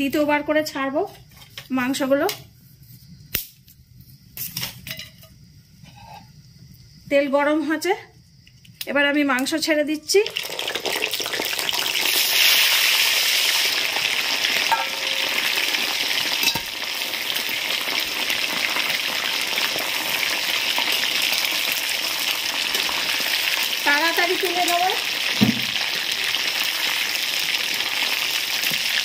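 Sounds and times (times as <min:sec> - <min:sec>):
chicken deep-frying in hot oil: 0:08.8 - 0:29.0
knock: 0:25.4 - 0:25.8.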